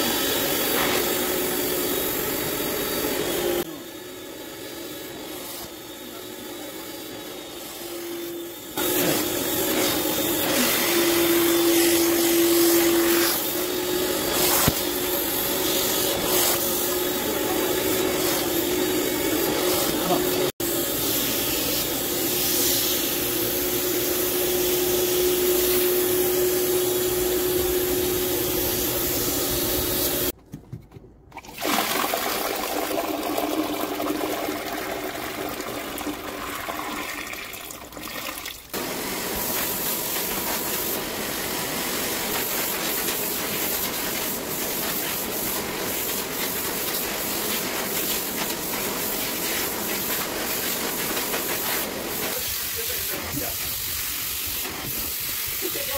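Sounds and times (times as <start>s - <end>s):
waste water gushing into toilet: 31.3s - 38.8s.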